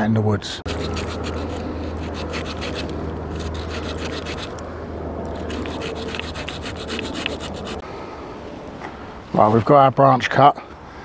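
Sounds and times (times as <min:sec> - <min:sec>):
steady low hum: 0:00.6 - 0:09.5
saw cutting branch: 0:00.7 - 0:04.6, 0:05.3 - 0:07.8.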